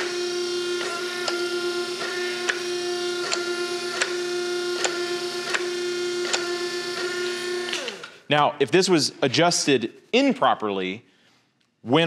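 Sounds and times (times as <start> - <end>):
hydraulic pump humming: 0.0 - 8.2.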